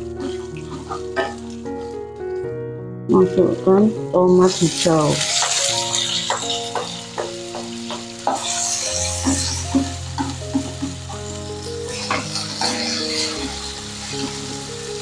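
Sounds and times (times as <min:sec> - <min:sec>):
tomatoes sizzling in hot oil: 0:00.0 - 0:02.0, 0:03.2 - 0:15.0
background music with held notes: 0:00.0 - 0:15.0
wooden spatula knocking on pan: 0:06.3 - 0:08.5, 0:09.2 - 0:11.1.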